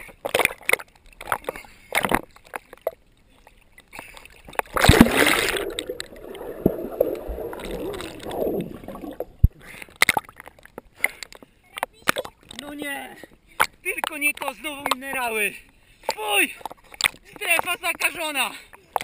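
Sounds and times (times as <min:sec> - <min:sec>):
water splashing: 0:04.0 - 0:10.7
muffled underwater sound: 0:04.9 - 0:09.6.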